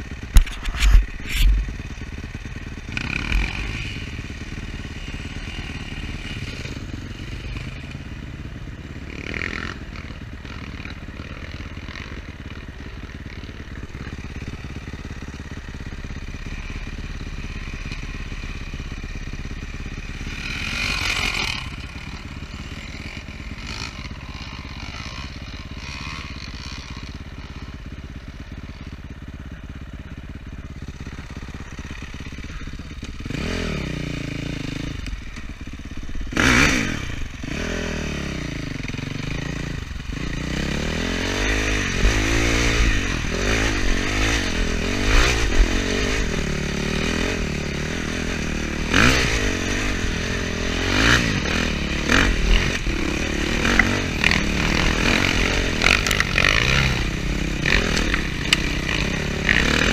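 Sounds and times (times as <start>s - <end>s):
dirt bike engine revving: 0.0s - 59.9s
clatter and scraping over rough ground: 0.1s - 2.3s, 50.8s - 59.9s.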